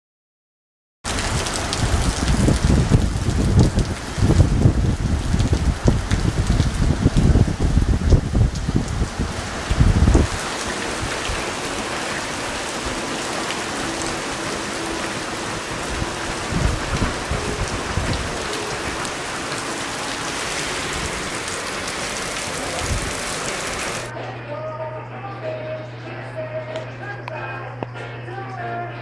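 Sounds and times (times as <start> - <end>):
heavy rain on street: 1.1 - 24.1.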